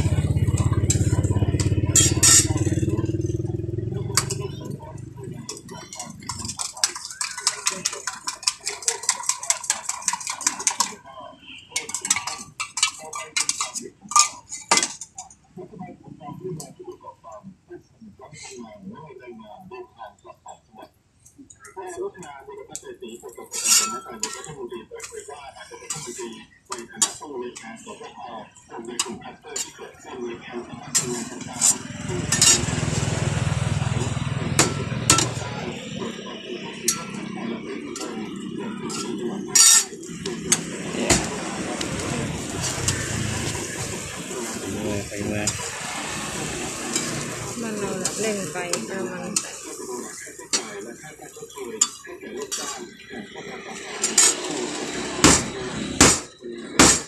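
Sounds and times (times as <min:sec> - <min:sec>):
metal spatula scraping griddle: 0:00.4 - 0:03.2, 0:05.5 - 0:11.0, 0:23.4 - 0:25.2, 0:30.9 - 0:35.7, 0:36.8 - 0:50.9, 0:51.6 - 0:52.9, 0:53.7 - 0:55.9.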